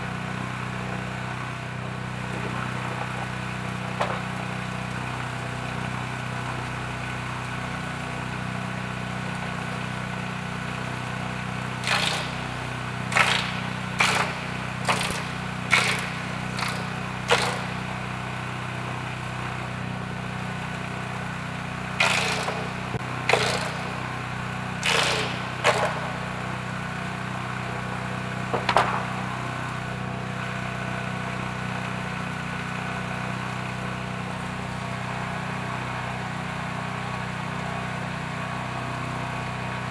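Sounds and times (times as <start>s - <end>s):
small gasoline engine running: 0.0s - 39.9s
bamboo pole cutting noises: 11.8s - 17.9s, 22.0s - 24.1s, 24.8s - 26.2s.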